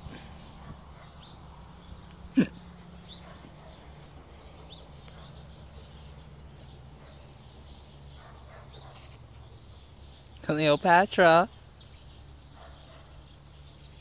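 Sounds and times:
dog barking: 0.6s - 1.2s, 3.2s - 3.9s, 8.2s - 9.1s, 12.6s - 13.2s.

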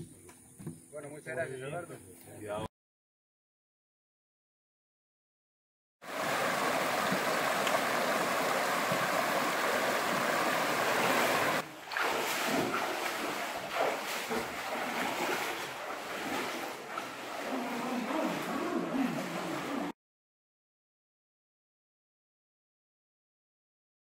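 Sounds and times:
river water running over rocks: 6.0s - 19.9s
people wading and splashing: 6.1s - 19.9s.

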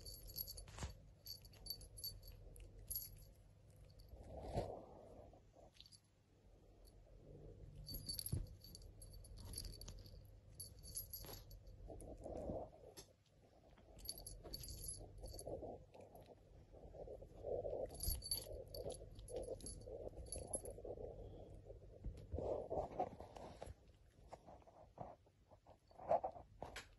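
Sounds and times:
light metallic jingling: 0.0s - 4.1s, 7.8s - 11.9s, 14.0s - 15.5s, 17.8s - 20.8s
cat rustling and bumping: 7.9s - 9.9s.

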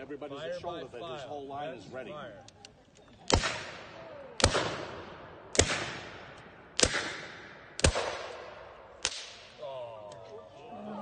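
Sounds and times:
musket shots cracking: 3.3s - 9.6s.

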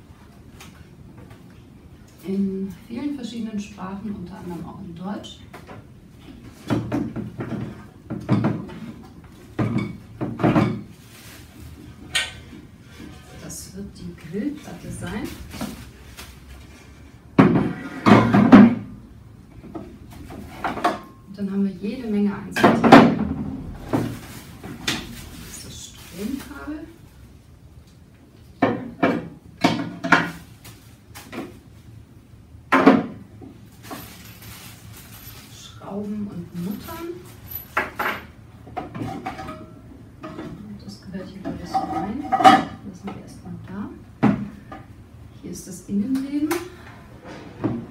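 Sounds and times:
packaging rustle: 33.7s - 35.6s.

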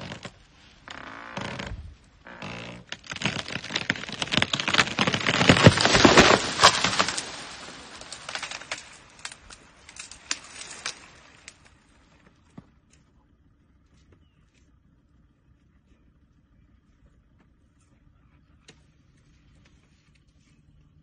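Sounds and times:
tree cracking and splintering: 0.0s - 12.4s
branches snapping: 2.3s - 11.8s.

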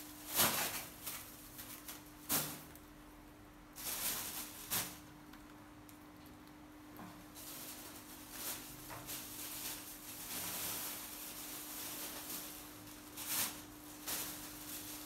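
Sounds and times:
faint steady hum: 0.0s - 15.0s
rustling and crunching of pods: 7.2s - 15.0s.

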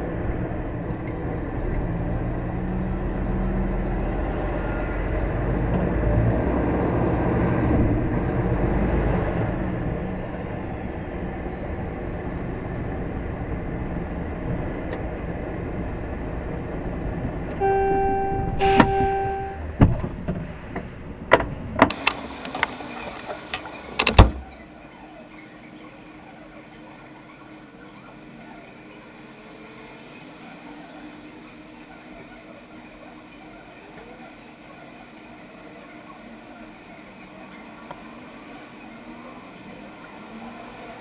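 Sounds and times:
diesel lorry engine running: 0.0s - 26.7s
pitched tone: 17.6s - 19.7s.

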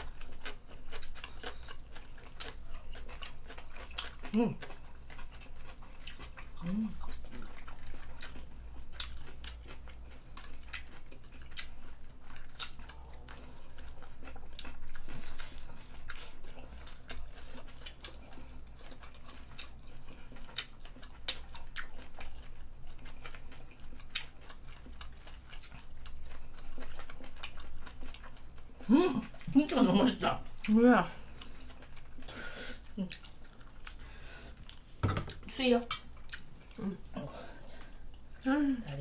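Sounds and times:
low steady hum: 0.0s - 39.0s
people chewing food: 0.0s - 39.0s.

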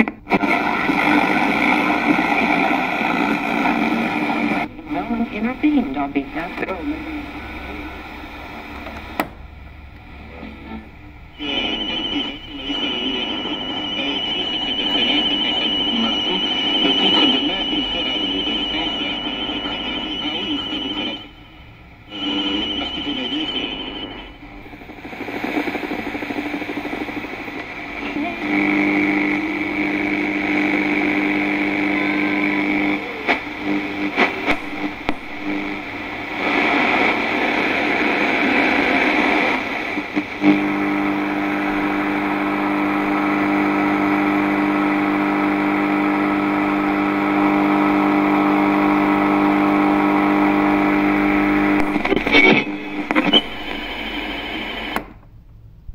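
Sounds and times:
buzzing hum: 0.0s - 55.9s
radio static hiss and crackle: 0.0s - 55.9s.

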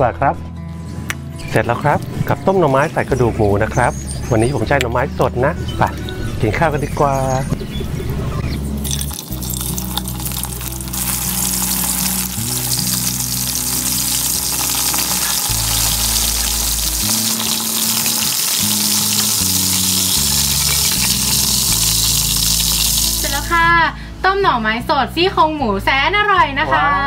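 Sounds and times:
background music with bass: 0.0s - 27.0s
fish sizzling in hot oil: 8.8s - 23.6s.

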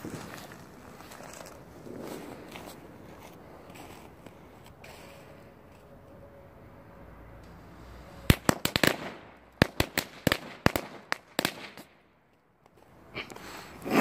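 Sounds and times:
firecrackers banging: 8.0s - 12.1s.

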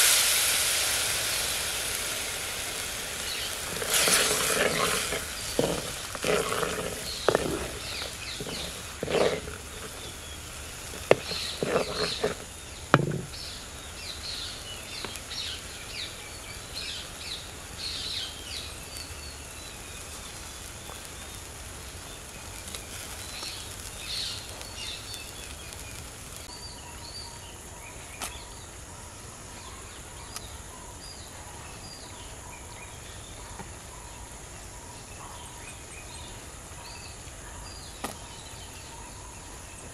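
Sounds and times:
birds chirping: 1.4s - 28.7s
spatula scraping clay pot: 3.6s - 13.4s.

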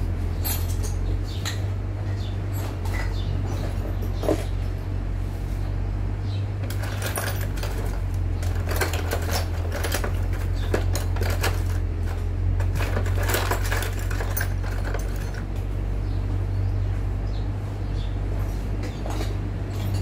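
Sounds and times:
steady low hum: 0.0s - 20.0s
metal tools clinking in toolbox: 0.4s - 4.5s, 6.6s - 15.6s, 18.4s - 20.0s.

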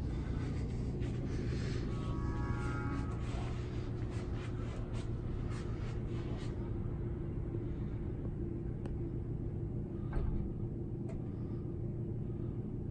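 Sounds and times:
low mechanical hum and rumble: 0.0s - 12.9s.

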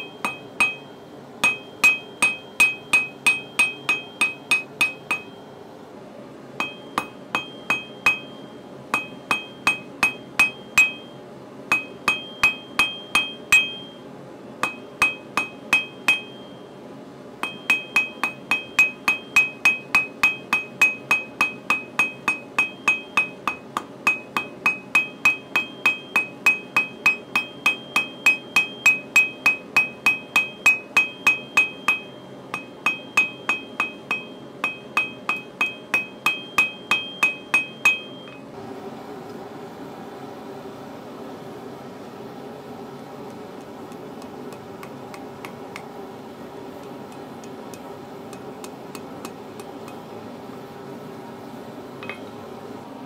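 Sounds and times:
hammer striking steel on anvil: 0.0s - 5.4s, 6.6s - 14.0s, 14.6s - 16.6s, 17.4s - 38.4s, 52.0s - 52.3s
steady hum: 0.0s - 53.0s.

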